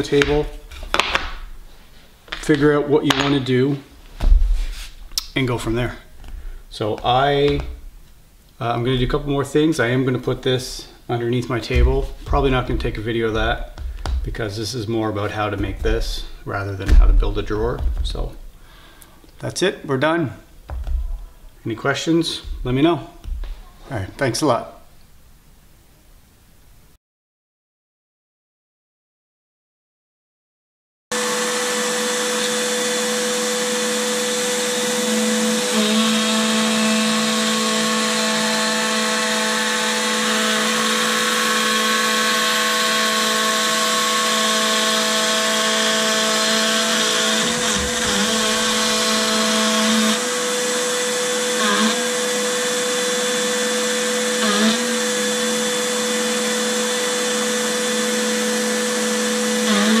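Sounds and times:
router spindle cutting at high pitch: 0:31.2 - 1:00.0.

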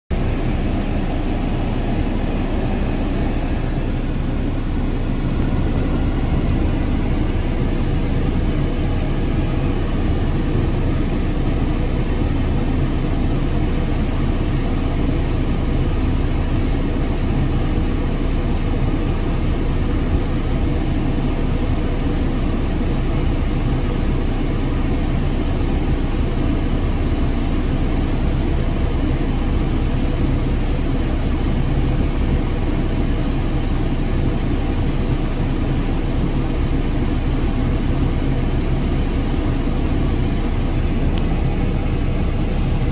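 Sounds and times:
excavator diesel engine drone: 0:00.1 - 0:42.9.

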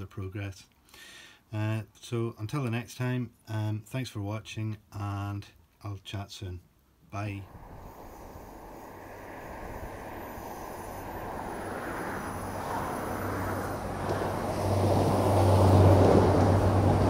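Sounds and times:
train rumbling past: 0:07.4 - 0:17.0.

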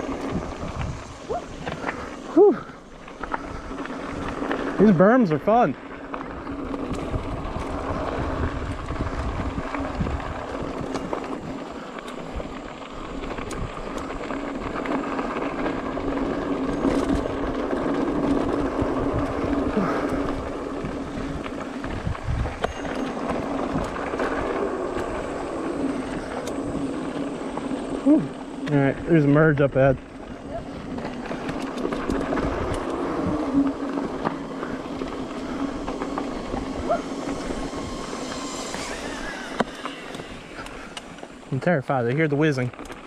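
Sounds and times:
wind noise on microphone: 0:00.0 - 0:02.3, 0:06.4 - 0:27.1, 0:30.3 - 0:41.4
bike tyres on dirt and stones: 0:00.0 - 0:43.0.

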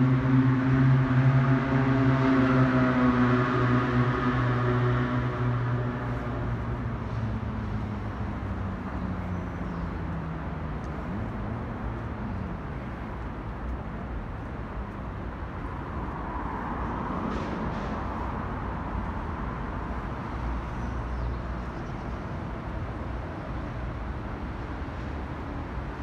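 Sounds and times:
droning engine hum: 0:00.0 - 0:17.0
distant road traffic rumble: 0:00.0 - 0:26.0.

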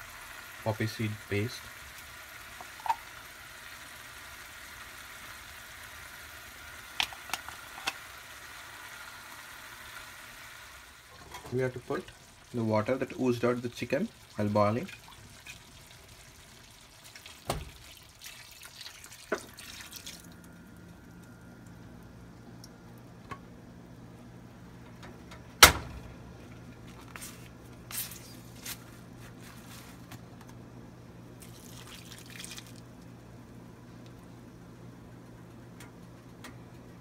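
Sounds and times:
low steady hum: 0:00.0 - 0:37.0
liquid pouring into a pan: 0:13.8 - 0:20.5, 0:31.4 - 0:32.8.

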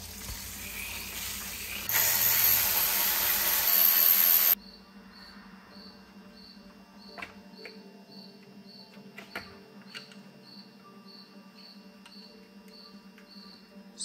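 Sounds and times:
air blow gun hissing: 0:01.0 - 0:04.6.

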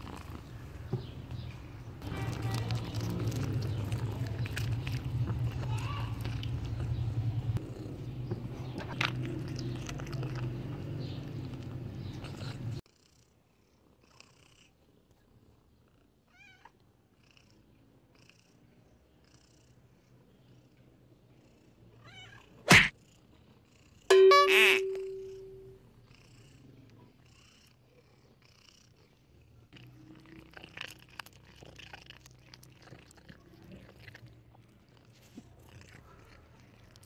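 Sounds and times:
cat rumbling while eating: 0:00.0 - 0:13.1, 0:26.0 - 0:37.0.

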